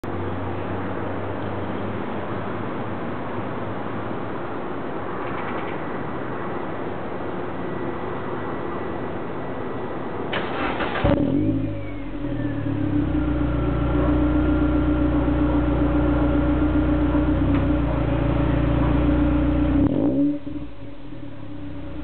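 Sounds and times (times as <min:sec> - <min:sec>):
car exhaust revving: 0:11.0 - 0:22.0.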